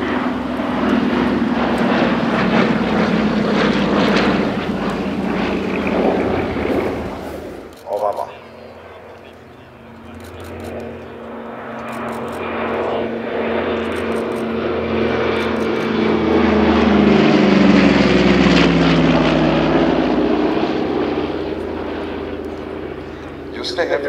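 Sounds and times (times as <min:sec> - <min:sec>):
propeller plane flying past: 0:00.0 - 0:24.0.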